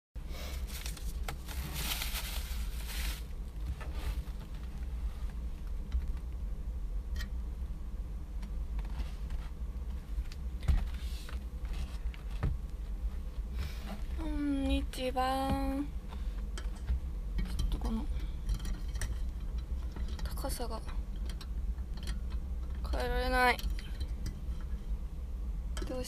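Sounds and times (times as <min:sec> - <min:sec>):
steady low rumble: 0:00.2 - 0:26.0.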